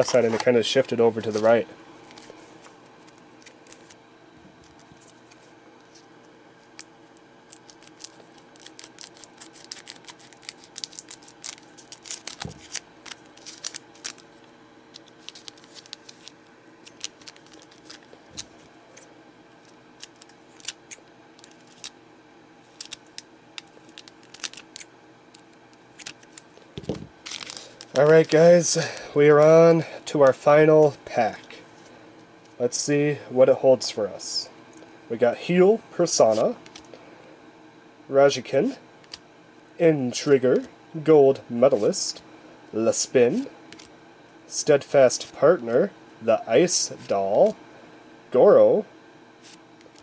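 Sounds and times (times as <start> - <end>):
foil wrapper crackling: 7.5 - 18.6, 22.7 - 28.4.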